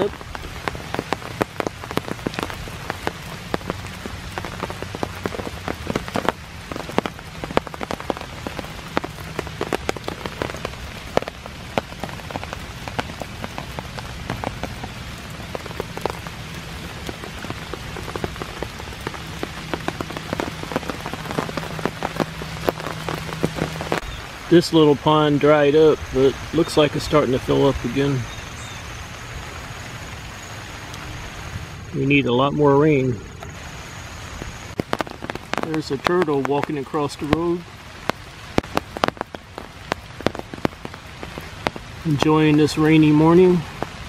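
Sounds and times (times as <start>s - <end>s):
rain hissing: 0.0s - 44.0s
raindrops ticking: 0.0s - 44.0s.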